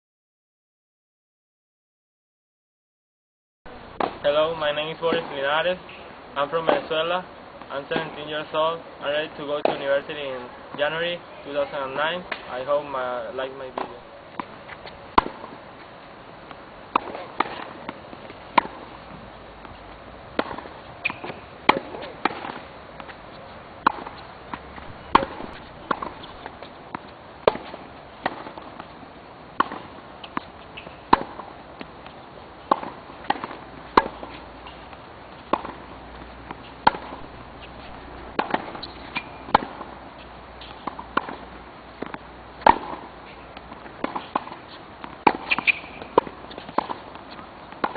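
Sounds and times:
tennis ball bouncing on court: 9.4 - 11.2, 13.5 - 15.6, 16.4 - 29.0, 29.6 - 47.9
racquet hitting tennis ball: 13.7 - 15.6, 16.5 - 19.7, 20.3 - 23.2, 23.8 - 28.9, 29.6 - 47.9.

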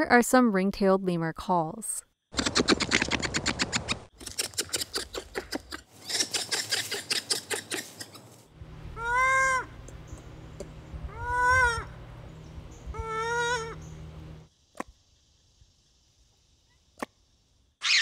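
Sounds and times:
lemur clicking pulses: 2.3 - 8.2
lemur drawn-out calls: 8.9 - 9.8, 11.0 - 12.0, 12.7 - 14.0.

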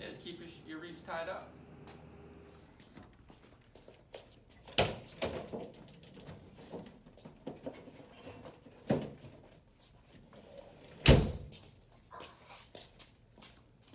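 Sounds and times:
metal door slamming shut: 11.0 - 11.5.

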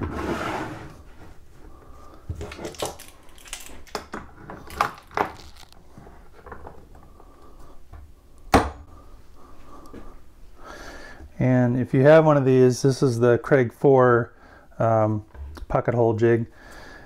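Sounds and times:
wooden board scraping: 0.0 - 1.2.

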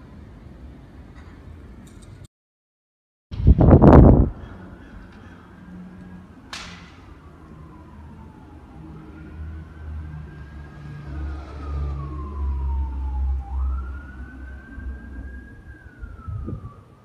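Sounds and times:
distant siren wailing: 3.8 - 17.0.

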